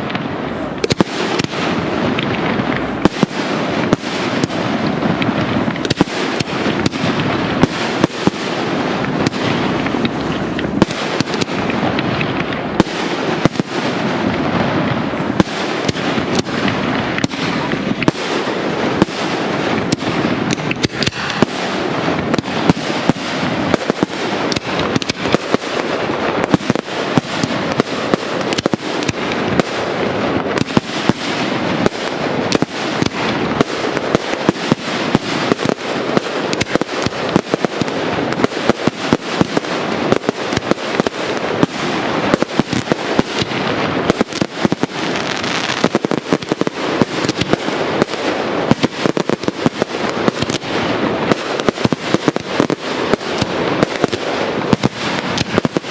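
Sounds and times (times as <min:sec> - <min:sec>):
fireworks bursting: 0:00.0 - 0:55.9.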